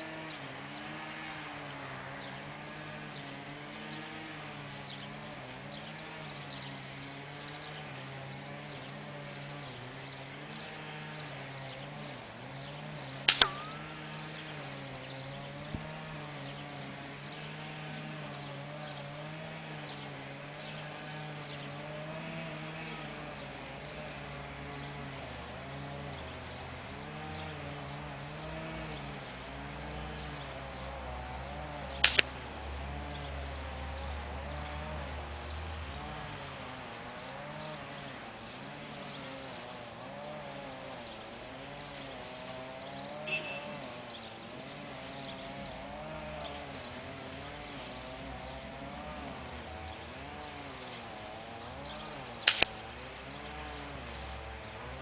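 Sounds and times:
steady wavering drone: 0.0 - 36.6
air rifle shot crack: 13.3 - 14.3, 52.5 - 52.7.

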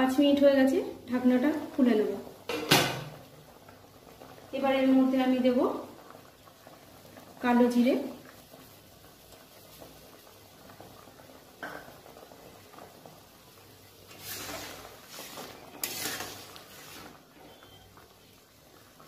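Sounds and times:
syrup bubbling in a wok: 0.5 - 19.0
rustling noises: 14.0 - 17.7.

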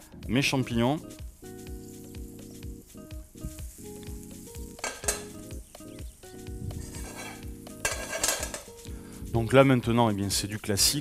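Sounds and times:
mushrooms sizzling in a frying pan: 1.0 - 9.3.

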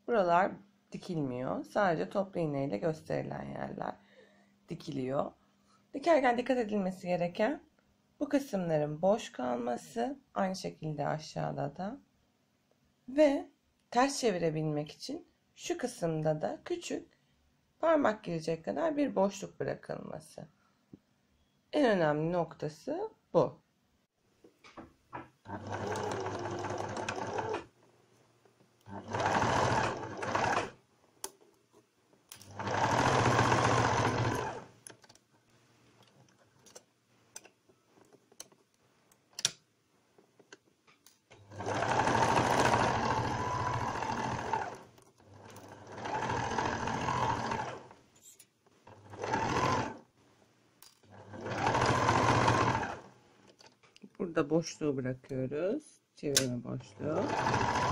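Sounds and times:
electric sewing machine stitching: 25.5 - 27.7, 28.8 - 30.8, 32.5 - 34.8, 41.4 - 48.0, 48.9 - 50.1, 51.1 - 53.2, 56.8 - 57.9.

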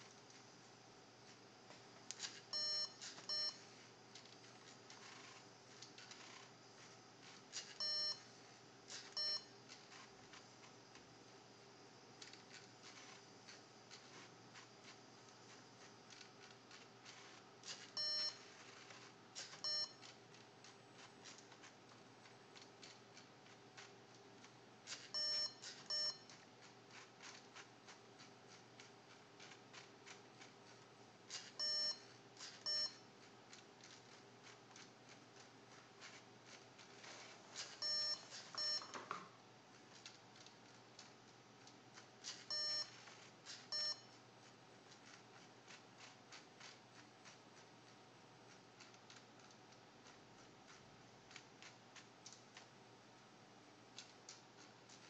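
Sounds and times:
faint steady hum: 0.0 - 55.0
small mechanical ticks: 2.1 - 6.5, 7.2 - 8.2, 8.9 - 11.1, 12.2 - 38.8, 39.7 - 52.7, 53.9 - 55.0
short electronic beeps: 2.5 - 3.6, 7.8 - 8.3, 9.2 - 9.5, 18.0 - 18.4, 19.6 - 20.0, 25.1 - 26.3, 31.6 - 32.0, 32.6 - 33.0, 37.8 - 38.9, 42.5 - 42.9, 43.7 - 44.2.

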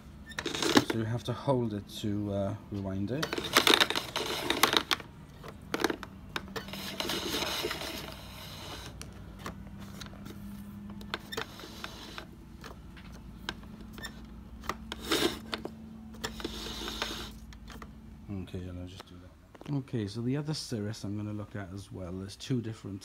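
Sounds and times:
power cord scraping: 0.2 - 1.2, 3.1 - 17.9
cord reel clicking and rattling: 3.1 - 10.2.

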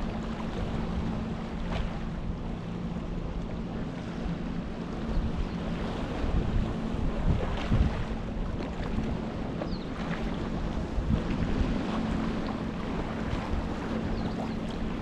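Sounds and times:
sea water lapping on shore: 0.0 - 15.0
steady low hum: 0.0 - 15.0
wind gusting on microphone: 5.0 - 15.0.

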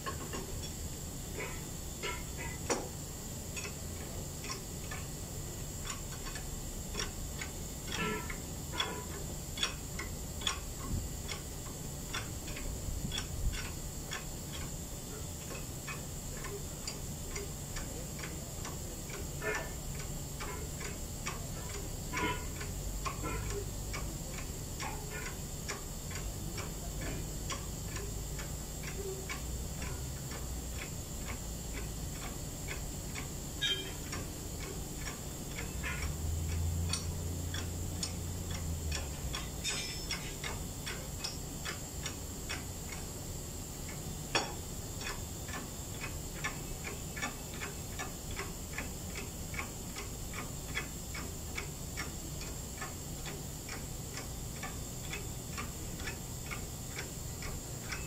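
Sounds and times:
hydraulic hand pump clicking: 33.6 - 34.2.

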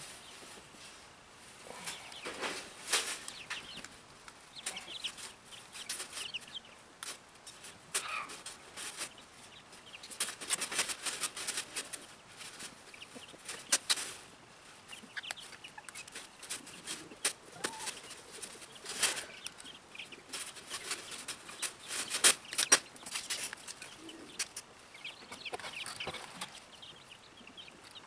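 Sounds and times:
chickens clucking and chirping: 0.0 - 28.0.

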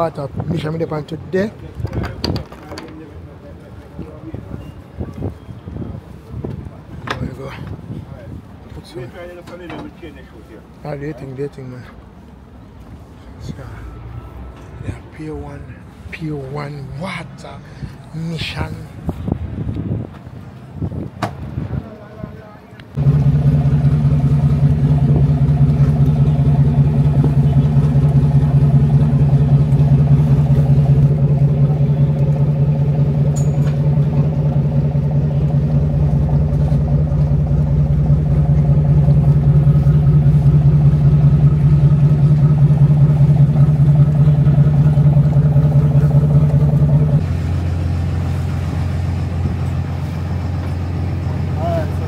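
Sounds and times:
boat engine humming: 22.2 - 52.0.

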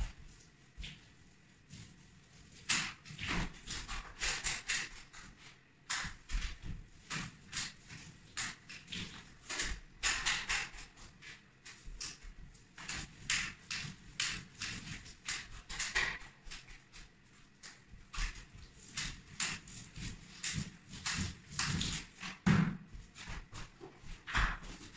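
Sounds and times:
roller sticky swishes and taps: 0.1 - 24.9
shuffling steps: 16.5 - 24.9.

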